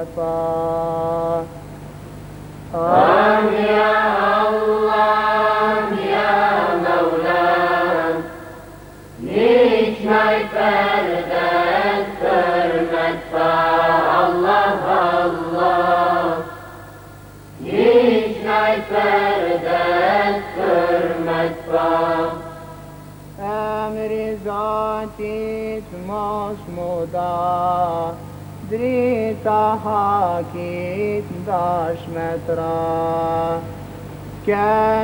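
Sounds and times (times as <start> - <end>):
faint low hum: 0.0 - 35.0
girls choir singing a hymn: 2.7 - 28.2.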